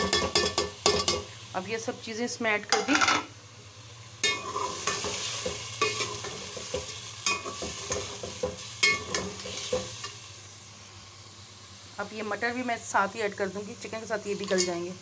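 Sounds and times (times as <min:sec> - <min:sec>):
food sizzling: 0:00.0 - 0:15.0
spoon scraping and clinking pot: 0:04.2 - 0:09.9.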